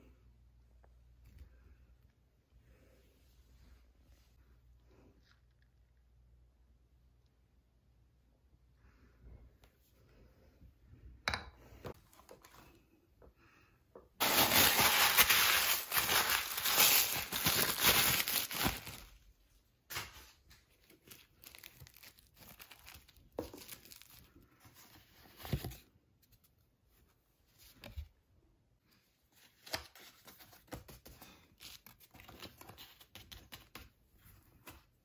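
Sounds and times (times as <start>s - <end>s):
plastic packaging crinkling and tearing: 14.2s - 19.2s, 20.7s - 24.4s
plastic rustling: 14.2s - 19.2s, 19.9s - 25.4s.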